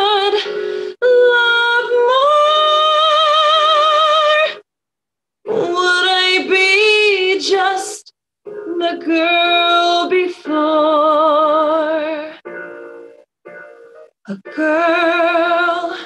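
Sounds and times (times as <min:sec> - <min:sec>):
woman singing a slow ballad: 0:00.0 - 0:04.6, 0:05.5 - 0:08.0, 0:08.6 - 0:12.4, 0:14.3 - 0:16.0.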